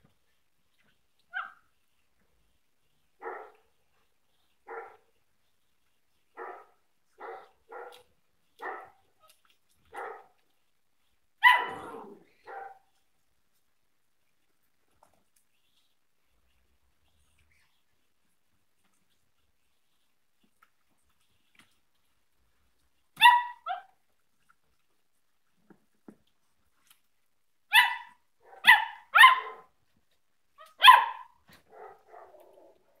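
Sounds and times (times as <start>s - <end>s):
puppy barking: 1.3s - 1.6s, 3.2s - 3.6s, 4.7s - 5.0s, 6.4s - 9.0s, 9.9s - 10.4s, 11.4s - 12.9s, 23.2s - 23.9s, 27.7s - 29.8s, 30.6s - 32.5s.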